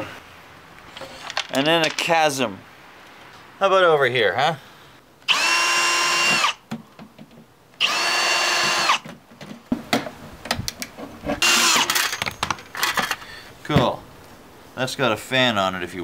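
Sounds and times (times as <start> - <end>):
cordless drill whining: 5.3 - 6.6, 7.8 - 9.0, 11.4 - 12.0
metal clicks and rattles: 11.8 - 13.2.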